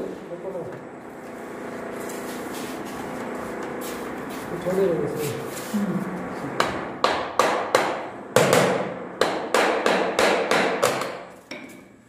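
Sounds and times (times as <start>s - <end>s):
hammer knocking on floor plank: 6.6s - 11.7s.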